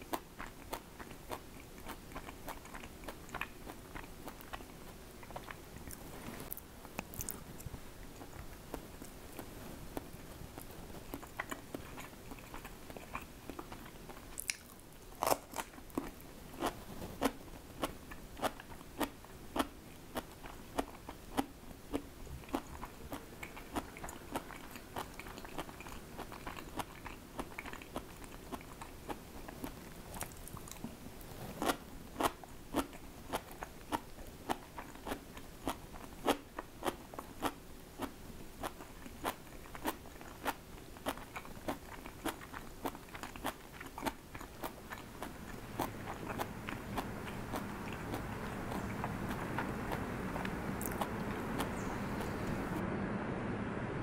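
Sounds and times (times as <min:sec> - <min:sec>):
chewing crunchy food: 0:00.0 - 0:52.7.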